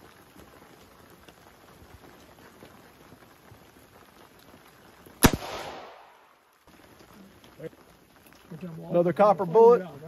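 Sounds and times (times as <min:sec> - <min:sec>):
air rifle shot: 0:05.2 - 0:06.2.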